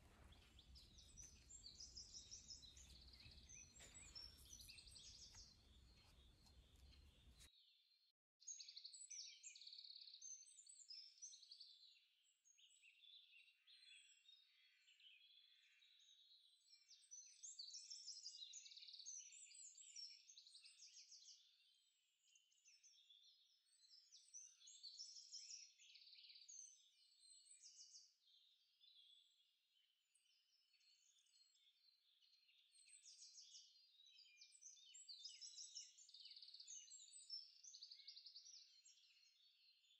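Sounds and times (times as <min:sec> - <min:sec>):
small birds chirping: 0:00.0 - 0:07.8, 0:30.2 - 0:39.9.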